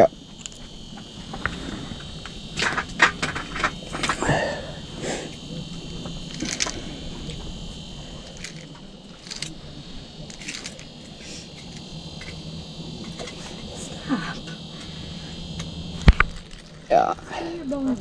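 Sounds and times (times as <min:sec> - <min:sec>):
low hum and hiss: 0:00.0 - 0:18.0
fishing reel clicks and rustles: 0:06.3 - 0:07.5, 0:08.2 - 0:09.6, 0:10.2 - 0:12.4, 0:15.6 - 0:17.8.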